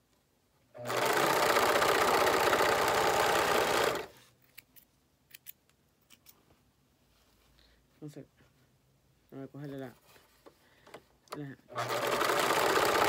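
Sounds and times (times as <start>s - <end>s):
sewing machine running: 0.8s - 4.1s, 11.7s - 13.0s.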